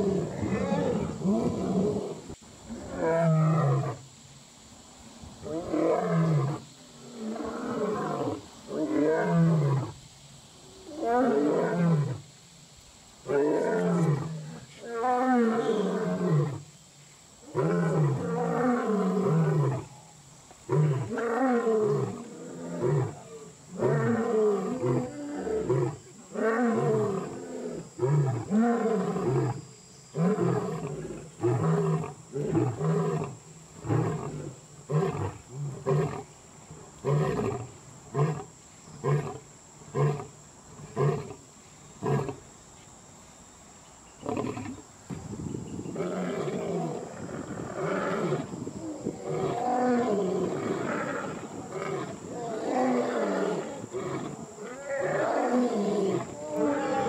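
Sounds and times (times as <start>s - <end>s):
lion roaring: 49.1s - 57.0s.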